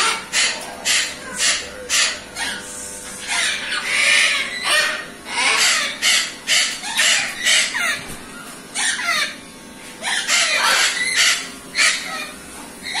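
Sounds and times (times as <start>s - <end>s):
parrot screaming: 0.0s - 8.0s, 8.8s - 9.4s, 10.0s - 13.0s
parrots squawking: 0.0s - 13.0s.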